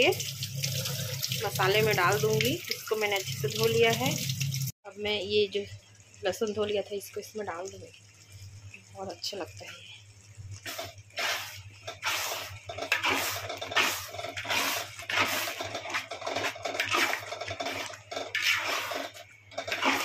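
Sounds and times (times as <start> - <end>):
metal spoon scraping pan: 10.7 - 20.0.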